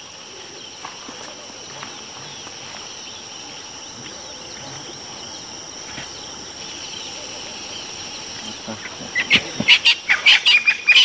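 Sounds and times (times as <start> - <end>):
high-pitched insect drone: 0.0 - 11.0
bird chirps: 6.0 - 11.0.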